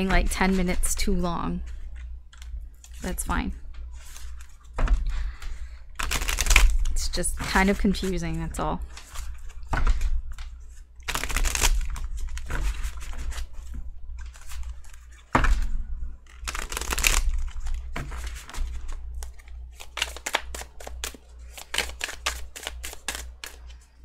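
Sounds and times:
cards shuffling: 16.3 - 23.9.

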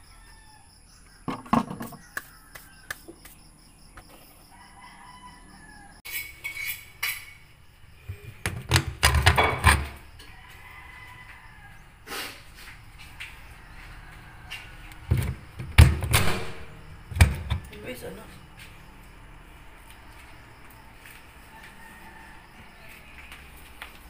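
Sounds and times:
rooster crowing: 0.0 - 3.2, 4.4 - 6.1, 9.9 - 15.2, 21.0 - 23.4
metallic clatter and knocks: 1.3 - 2.0, 8.1 - 10.0
plastic jug knocking on concrete: 1.3 - 2.1.

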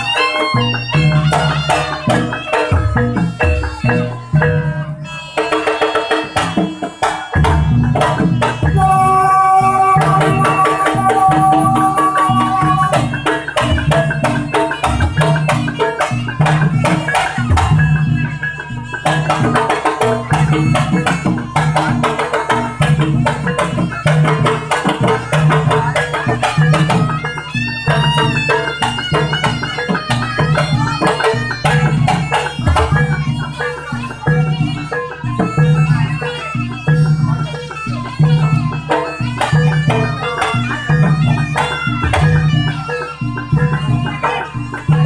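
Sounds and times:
hand drums beating: 0.0 - 45.0
low tuned percussion pattern: 0.0 - 45.0
wavering high melody: 0.0 - 45.0.

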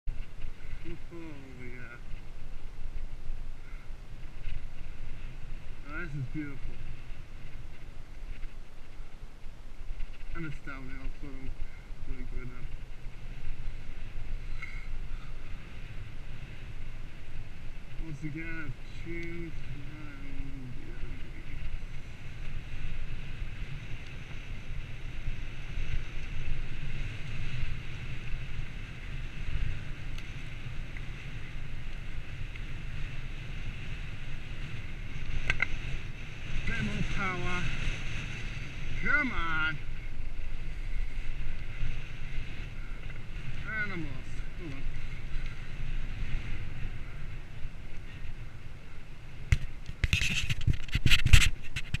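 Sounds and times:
bicycle rolling on pavement: 0.1 - 52.0
wind buffeting microphone: 0.1 - 52.0
steady hiss: 0.2 - 50.0
tyres rumbling over paving: 29.8 - 37.8.

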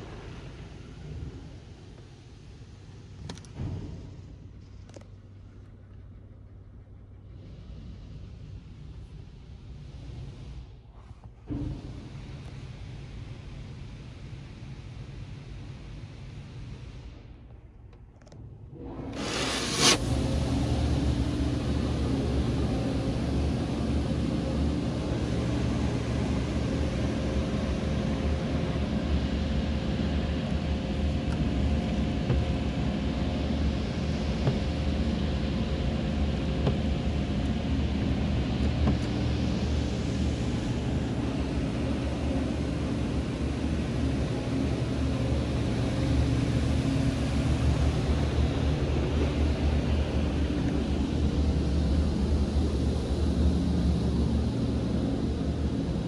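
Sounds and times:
car wash low rumble: 0.0 - 56.0
spraying water hiss: 19.2 - 20.9.

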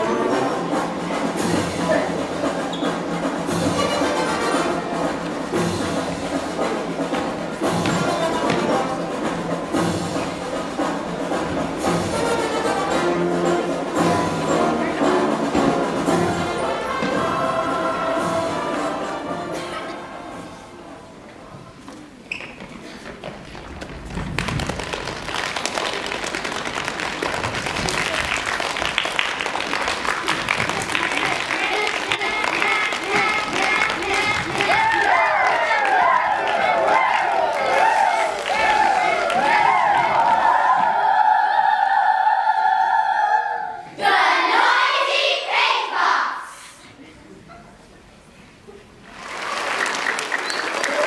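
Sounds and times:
audience applause: 23.5 - 40.8, 49.0 - 51.0.

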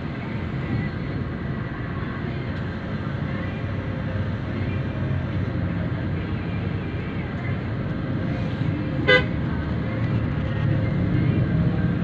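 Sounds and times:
vehicle engine and tyres rumbling: 0.0 - 12.0.

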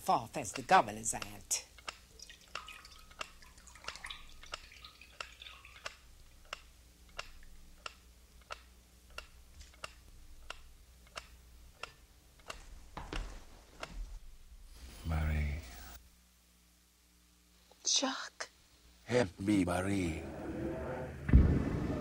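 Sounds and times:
water dripping into a basin: 1.1 - 7.5.

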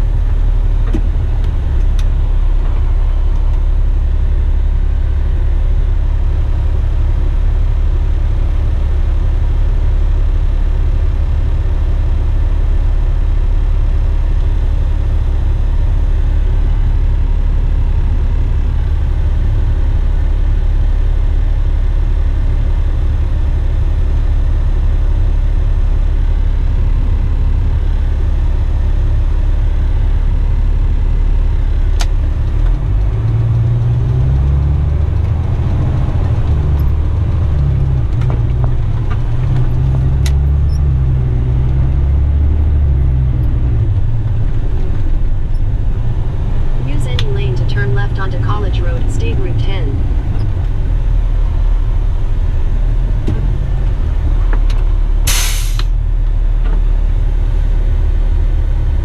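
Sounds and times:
truck diesel engine revving through gears: 32.0 - 54.4, 55.2 - 56.0.

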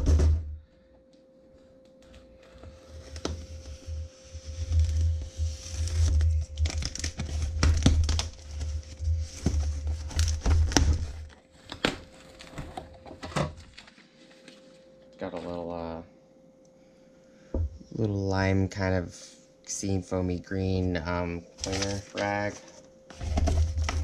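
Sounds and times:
faint steady hum: 0.0 - 24.0
cardboard box tearing: 5.6 - 12.8.

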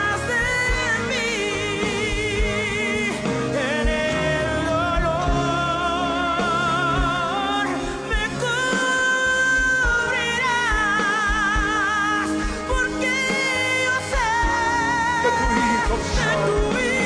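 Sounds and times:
worship music with full band: 0.0 - 17.0
low drum beats: 14.1 - 17.0.

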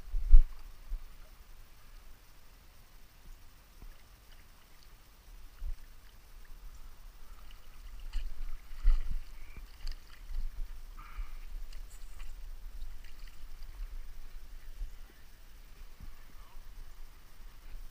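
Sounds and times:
water sloshing and splashing: 3.8 - 16.2.

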